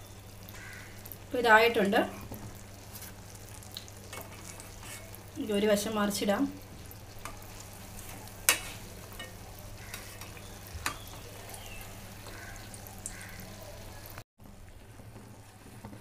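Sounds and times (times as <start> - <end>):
donuts sizzling in oil: 0.0 - 16.0.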